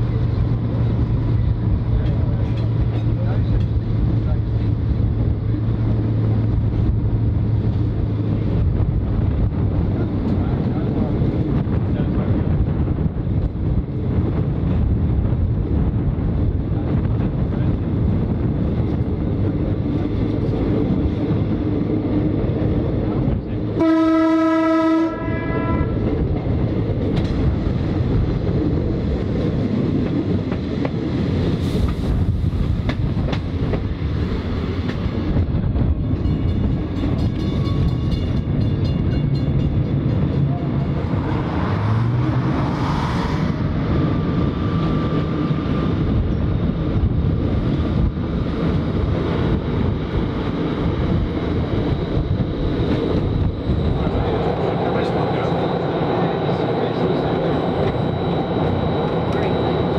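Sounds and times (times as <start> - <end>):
railcar engine running: 0.0 - 59.9
train horn blast: 23.8 - 26.1.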